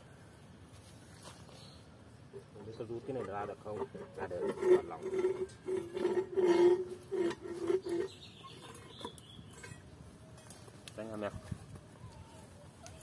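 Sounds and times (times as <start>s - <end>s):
faint high bird chirping: 7.8s - 9.8s.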